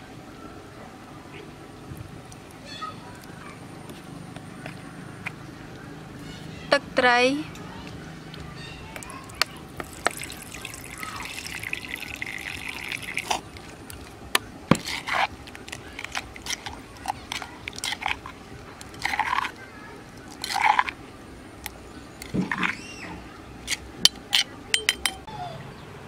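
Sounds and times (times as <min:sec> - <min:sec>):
liquid pouring into sauce: 0:09.8 - 0:14.1
metal spoon clinking on stone: 0:24.0 - 0:25.2.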